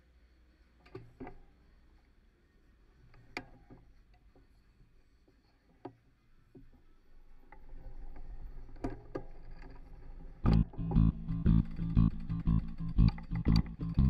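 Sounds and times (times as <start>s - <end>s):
sharp clicks and knocks: 10.5s - 14.0s.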